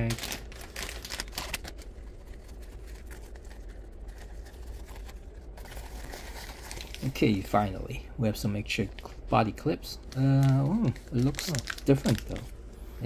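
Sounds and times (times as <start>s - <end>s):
light clicks and rustles of packaging: 10.1s - 12.5s.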